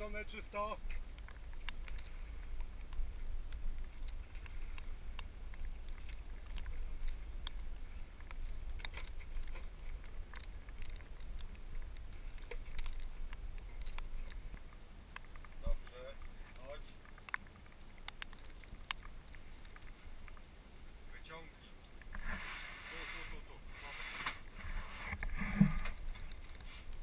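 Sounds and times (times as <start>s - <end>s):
wind rumble on camera: 0.0s - 21.1s, 21.8s - 27.0s.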